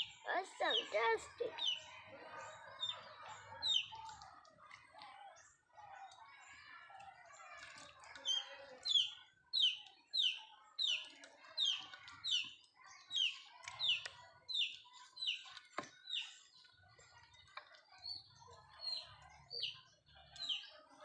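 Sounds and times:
chick peeping: 0:00.0 - 0:01.9, 0:02.7 - 0:04.3, 0:08.1 - 0:20.8.

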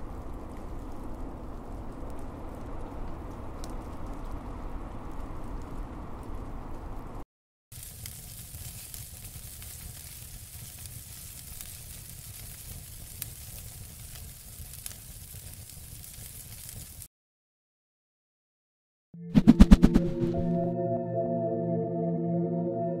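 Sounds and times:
fire crackling and popping: 0:00.0 - 0:17.1.

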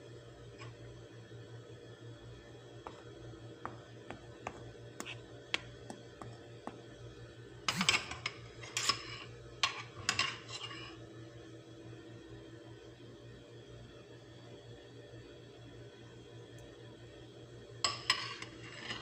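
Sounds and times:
steady low hum: 0:00.0 - 0:19.0
dishes clattering: 0:07.7 - 0:10.7.

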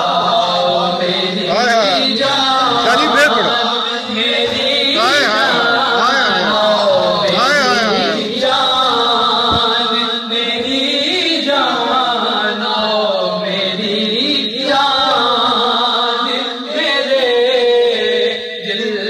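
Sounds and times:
man singing unaccompanied: 0:00.0 - 0:19.0.

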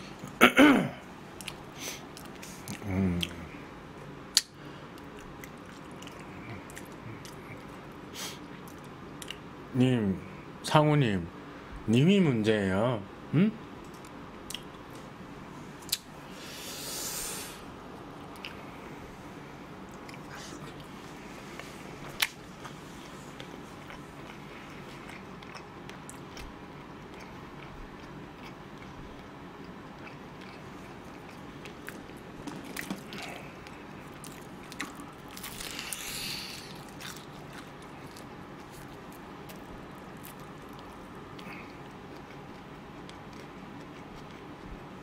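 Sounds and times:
low room hum: 0:00.0 - 0:45.0
chewing fried chicken: 0:01.3 - 0:03.6, 0:04.4 - 0:09.5, 0:18.2 - 0:45.0.

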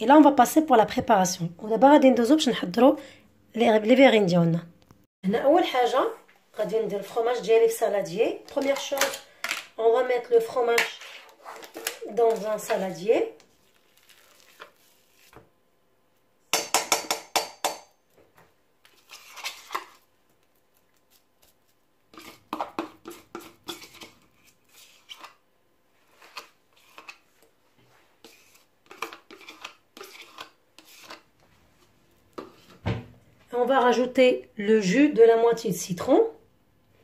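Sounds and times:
spoon scraping plastic tub: 0:10.4 - 0:15.4, 0:18.8 - 0:20.1, 0:21.4 - 0:25.4, 0:26.0 - 0:27.4, 0:28.2 - 0:32.8
spoon knocking on steel bowl: 0:16.5 - 0:17.9.

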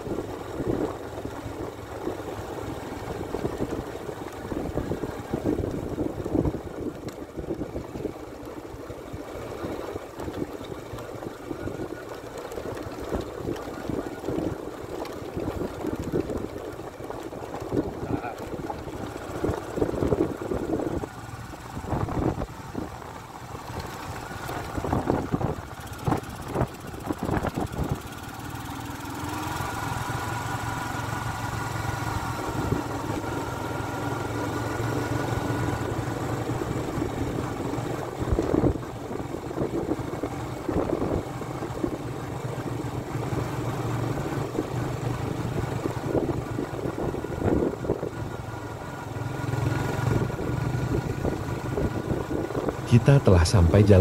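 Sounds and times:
small motorcycle engine running: 0:00.0 - 0:54.0.

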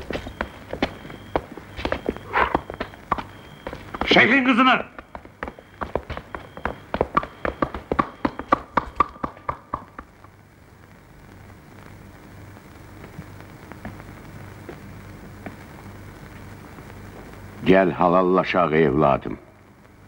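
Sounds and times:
hooves clopping on stone: 0:00.0 - 0:10.2
low steady hiss: 0:00.0 - 0:20.0.

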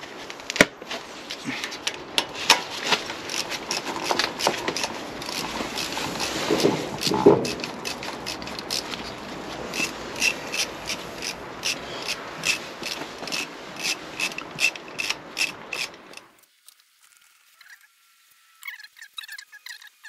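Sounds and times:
steady scraping: 0:00.9 - 0:16.4
ratchet wrench clicking: 0:03.3 - 0:16.3.

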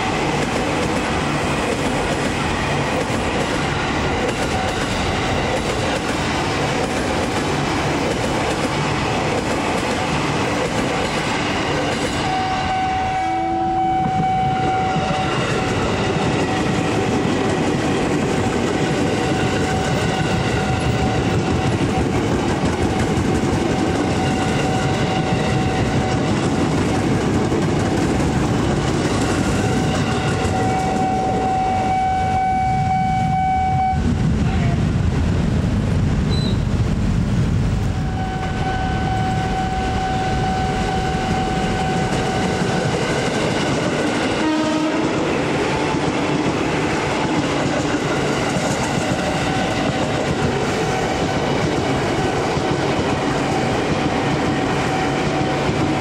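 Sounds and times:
train wheels rumbling on track: 0:00.0 - 0:56.0
long steady warning tone: 0:30.1 - 0:34.0, 0:38.0 - 0:43.0.

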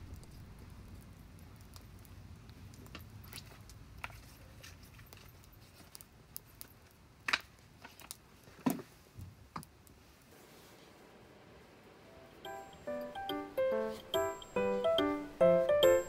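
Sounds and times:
firewood crackling and popping: 0:00.0 - 0:10.3.

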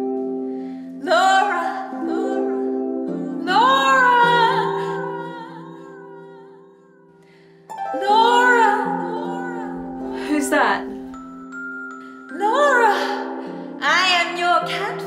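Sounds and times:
woman singing wordless notes: 0:01.0 - 0:06.6, 0:07.8 - 0:11.2, 0:12.3 - 0:15.0
harp-like plucked chords: 0:07.7 - 0:11.7.

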